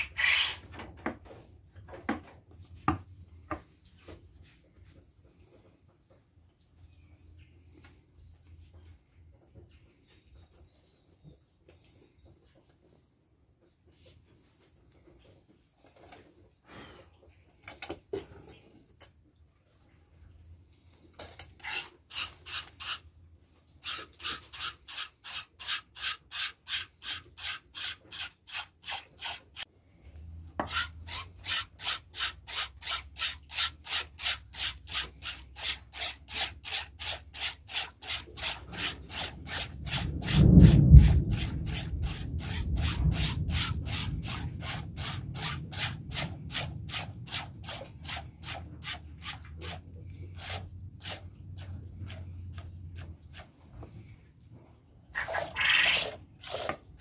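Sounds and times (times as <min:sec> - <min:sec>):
milk squirting into metal bowl: 0:55.2 - 0:57.0.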